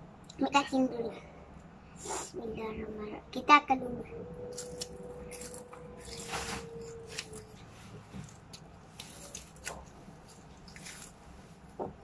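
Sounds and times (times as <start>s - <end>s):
crunching crisp seaweed snack: 8.2s - 11.4s.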